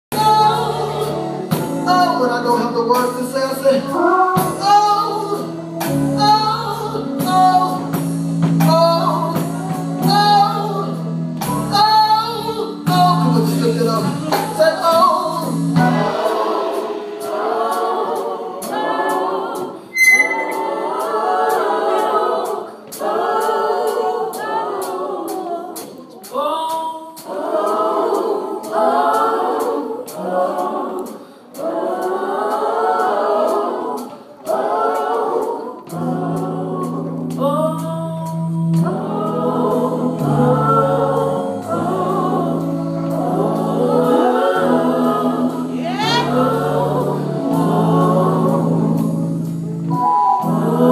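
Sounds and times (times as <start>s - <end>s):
held instrumental chords: 0.1s - 25.1s, 31.6s - 50.9s
gospel singing with congregation: 0.1s - 50.9s.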